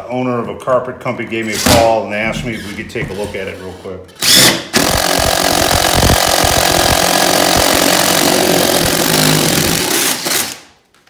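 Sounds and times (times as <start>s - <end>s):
cordless drill boring wood: 4.2s - 10.7s.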